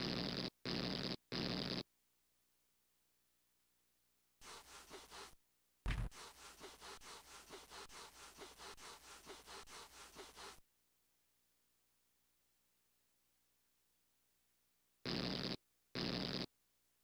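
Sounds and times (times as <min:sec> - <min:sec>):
loud thump: 0:05.9 - 0:06.2.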